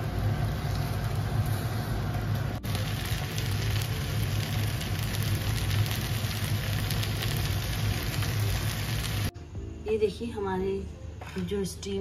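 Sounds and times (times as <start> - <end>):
faint crackles: 0.0 - 9.3
meat frying in a pan: 0.0 - 9.3.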